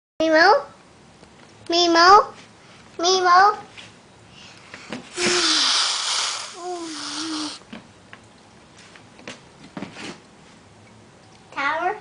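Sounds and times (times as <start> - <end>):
breathy rush into microphone: 5.2 - 7.6
person humming: 5.2 - 7.6.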